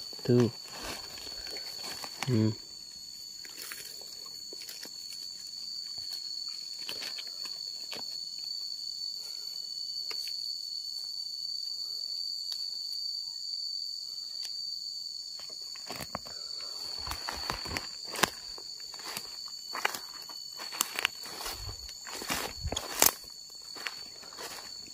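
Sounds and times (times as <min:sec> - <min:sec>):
rustles of dry leaf litter: 0:00.0 - 0:08.2
high-pitched insect drone: 0:00.0 - 0:24.9.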